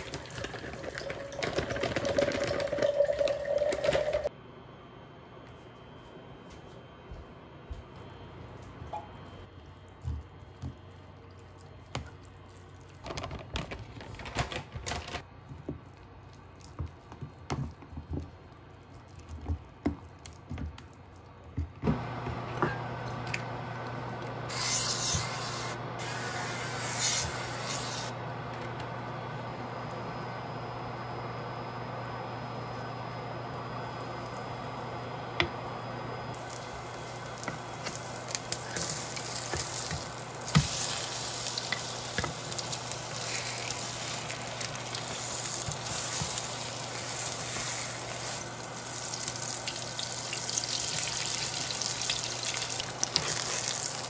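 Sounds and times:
pancakes sizzling in a pan: 36.4 - 54.0.

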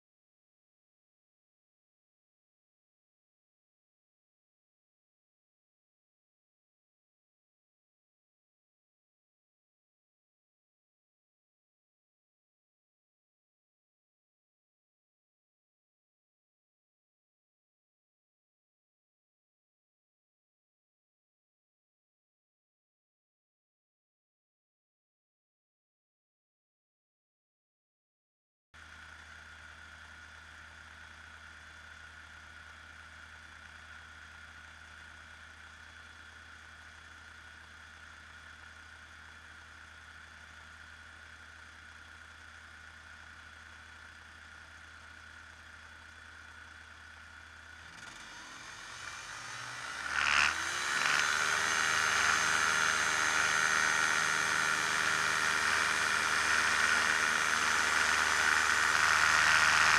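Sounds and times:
ultralight plane engine and propeller: 28.8 - 59.9.

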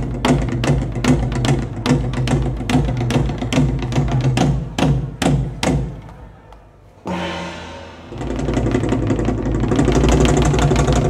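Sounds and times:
drums struck with low ringing: 7.1 - 10.6.

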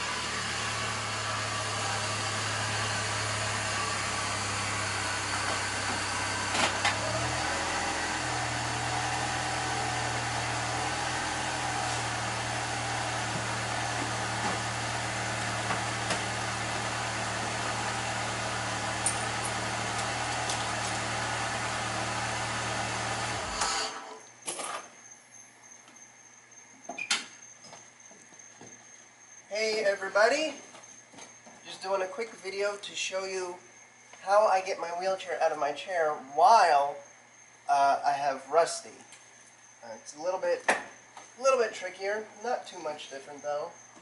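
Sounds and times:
car engine idling: 0.0 - 23.7.

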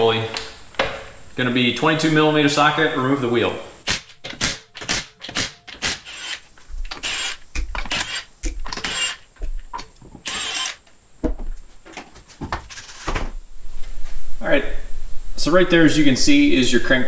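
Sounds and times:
impact wrench bursts: 3.8 - 9.2, 10.2 - 10.8.

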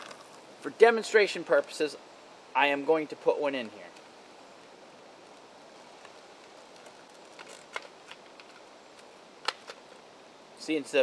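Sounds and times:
faint outdoor hiss: 0.0 - 11.0
package clicking and crackling: 6.0 - 9.9.

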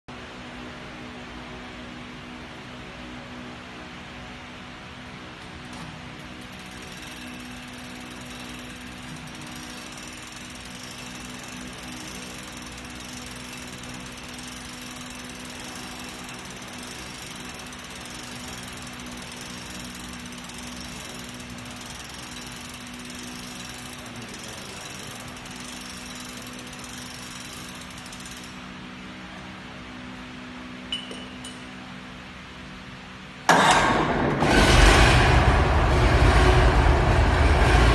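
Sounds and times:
ratchet lever clatter: 5.4 - 28.6
diesel engine turning over: 33.5 - 37.9.

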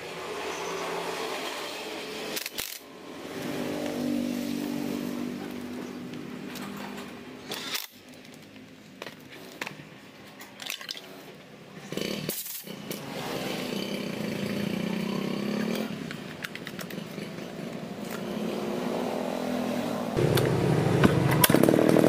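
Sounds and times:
cordless drill driving screws: 7.4 - 8.0
handling clicks: 16.1 - 17.2
chainsaw pull-started: 21.2 - 22.0.

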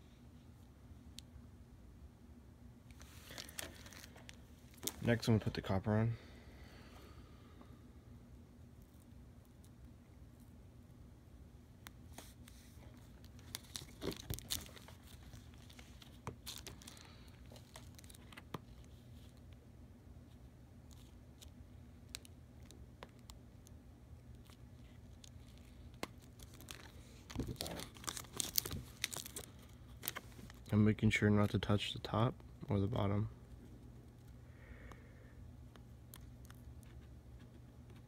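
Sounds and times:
tape crinkling and tearing: 2.9 - 5.2, 12.2 - 19.4, 24.2 - 30.7.

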